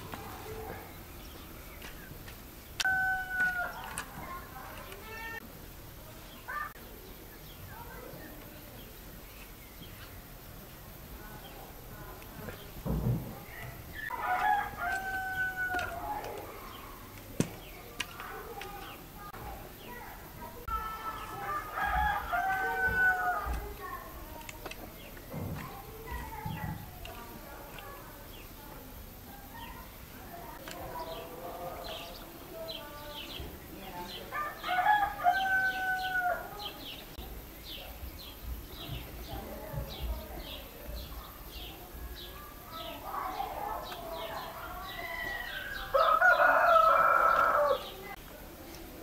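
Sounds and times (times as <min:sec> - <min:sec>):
small birds chirping: 0:00.0 - 0:49.0
rooster crowing: 0:02.8 - 0:04.1, 0:14.0 - 0:16.4, 0:21.0 - 0:23.6, 0:34.3 - 0:36.7, 0:44.7 - 0:48.0.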